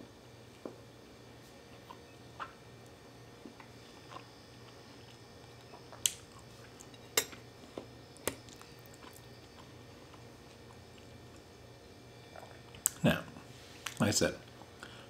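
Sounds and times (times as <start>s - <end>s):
person chewing: 3.4s - 11.4s, 12.3s - 13.0s.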